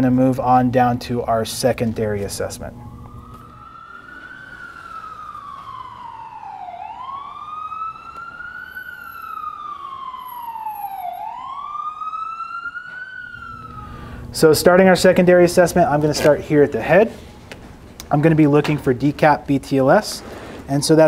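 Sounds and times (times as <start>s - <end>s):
emergency siren wailing: 2.6s - 16.0s.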